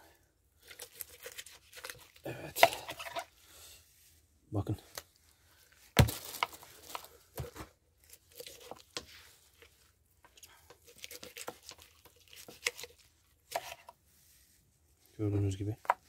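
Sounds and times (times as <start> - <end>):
tearing and crinkling: 0.6 - 3.1, 5.9 - 9.7, 10.8 - 13.8.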